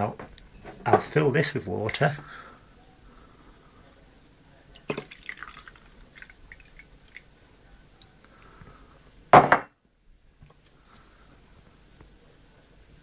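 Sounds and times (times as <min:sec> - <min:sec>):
water pouring into glass: 0:04.7 - 0:07.3
loud knock: 0:09.4 - 0:09.7.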